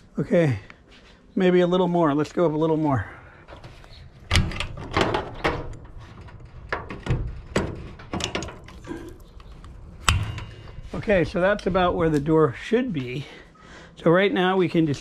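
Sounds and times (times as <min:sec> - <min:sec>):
metallic knocks and clunks: 0:03.5 - 0:11.8.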